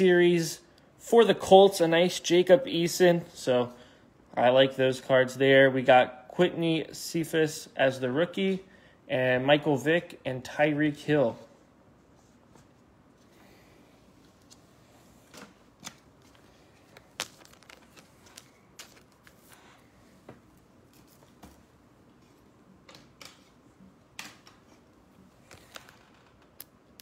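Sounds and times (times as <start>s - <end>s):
cards clicking and rustling: 15.3s - 19.8s.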